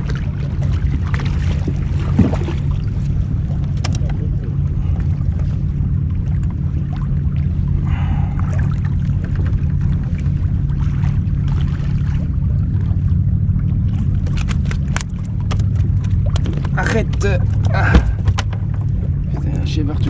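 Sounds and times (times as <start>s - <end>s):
boat rumbling on water: 0.0s - 20.0s.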